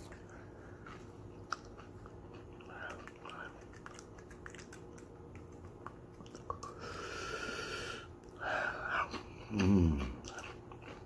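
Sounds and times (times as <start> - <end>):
crunchy chewing: 0.0 - 7.2, 8.2 - 11.0
man humming low mmm: 8.9 - 10.4.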